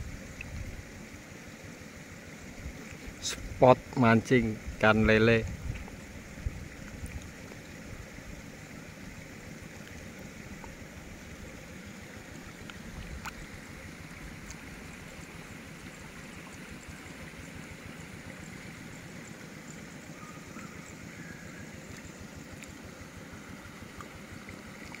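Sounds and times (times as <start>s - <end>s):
river water rushing: 5.6s - 25.0s.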